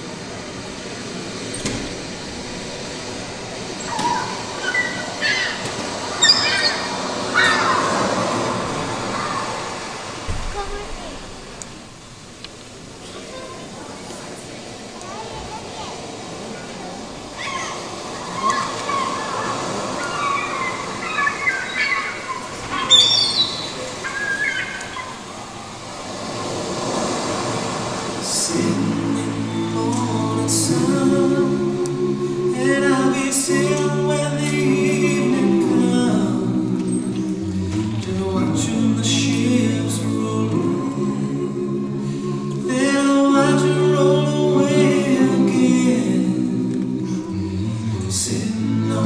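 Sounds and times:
audience chattering: 0.0 - 49.0
high-pitched shouts and whoops: 6.2 - 8.0
music: 28.3 - 49.0.

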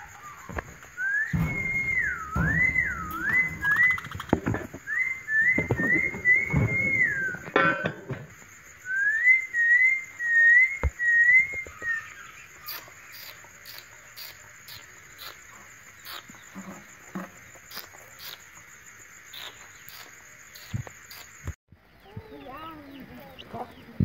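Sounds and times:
wavering whistle: 0.0 - 7.6, 8.8 - 13.3.

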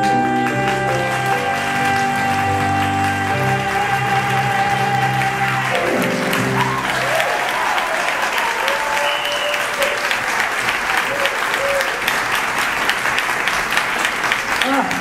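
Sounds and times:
man singing show tune: 0.0 - 6.7
audience applause and cheering: 0.0 - 15.0.

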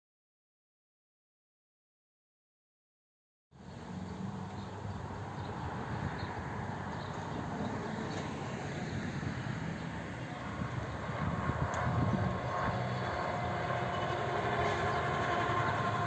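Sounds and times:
outdoor background noise: 3.5 - 16.0
diesel railcar engine hum: 3.6 - 16.0.

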